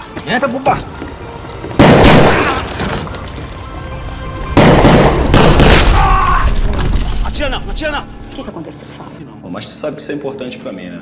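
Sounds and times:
background music: 0:00.0 - 0:11.0
gunfire volleys: 0:01.8 - 0:02.6, 0:04.6 - 0:06.0.

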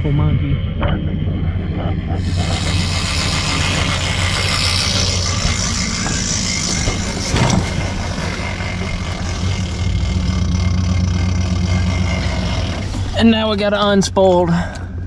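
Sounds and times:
outboard motor running: 0:00.0 - 0:15.0
thump: 0:06.8 - 0:07.8.

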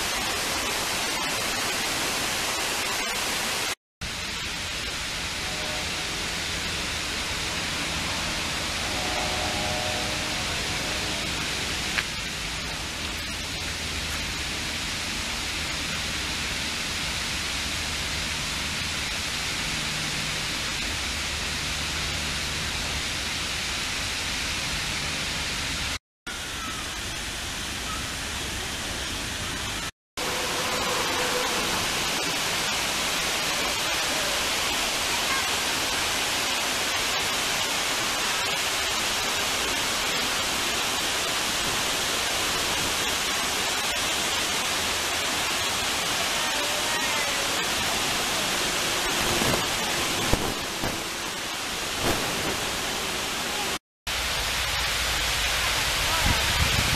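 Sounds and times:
water rushing over a dam spillway: 0:26.4 - 0:56.9.

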